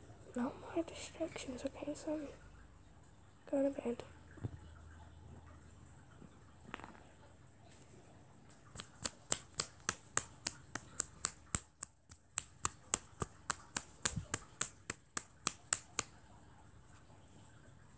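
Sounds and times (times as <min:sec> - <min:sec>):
sharp crisp clicks: 0:08.7 - 0:16.2.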